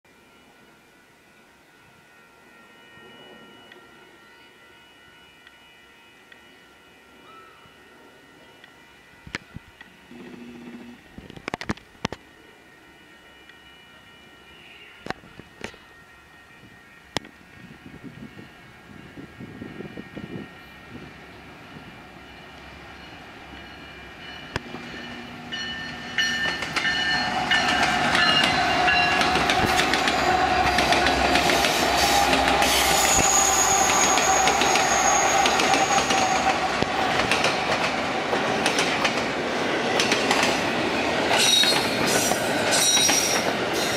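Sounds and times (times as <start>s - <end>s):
diesel locomotives passing: 10.8s - 43.9s
train wheels clacking on rail joints: 25.7s - 43.9s
wheels squealing on track: 28.2s - 36.6s, 41.4s - 43.9s.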